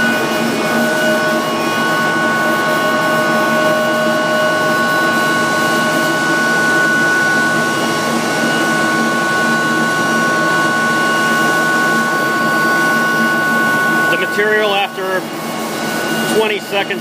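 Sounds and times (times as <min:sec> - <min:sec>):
machinery drone: 0:00.0 - 0:17.0
high-pitched tones: 0:13.4 - 0:15.4.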